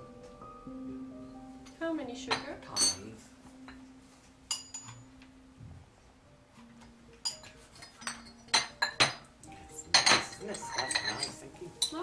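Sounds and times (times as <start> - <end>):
china teacups clinking: 2.3 - 3.8, 7.2 - 12.0.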